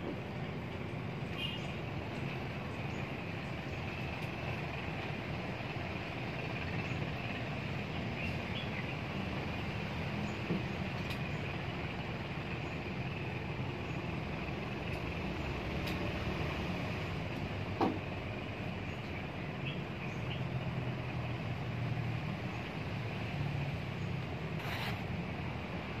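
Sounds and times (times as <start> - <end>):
brief squeak: 24.6 - 25.1.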